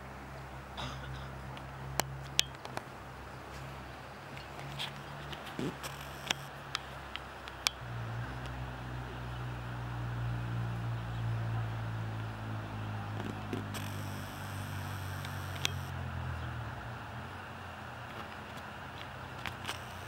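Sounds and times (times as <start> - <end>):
vehicle engine hum: 0.0 - 20.0
sharp clicks: 5.7 - 7.8, 13.2 - 15.9, 19.4 - 20.0.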